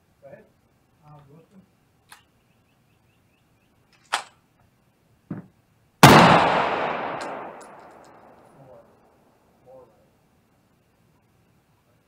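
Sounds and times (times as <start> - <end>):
faint knock: 5.3 - 5.5
loud gunshot with echo: 6.0 - 7.8
gun handling click: 7.0 - 8.3.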